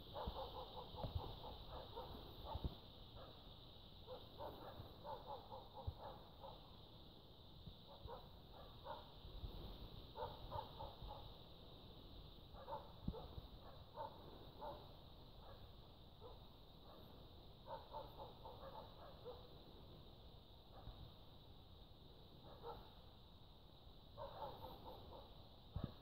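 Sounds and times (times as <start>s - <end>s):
distant dogs barking: 0.0s - 6.9s, 7.8s - 9.2s, 10.1s - 11.5s, 12.5s - 19.7s, 20.7s - 21.0s, 22.4s - 23.1s, 24.1s - 26.0s.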